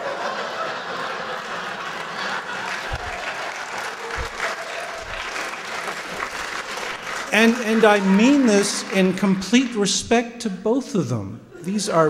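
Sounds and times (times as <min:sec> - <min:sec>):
audience applauding: 0:00.0 - 0:09.7
low thumps: 0:02.9 - 0:03.2, 0:04.1 - 0:05.3.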